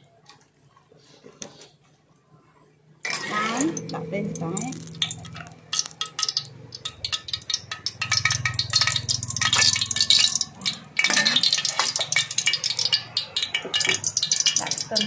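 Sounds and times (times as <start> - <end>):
metal spatula scraping a wok: 3.1 - 3.8, 7.1 - 15.0.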